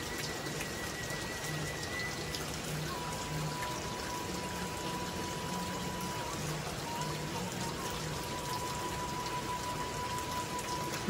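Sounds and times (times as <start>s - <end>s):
raindrops ticking: 0.0s - 11.0s
steady rain falling: 0.0s - 11.0s.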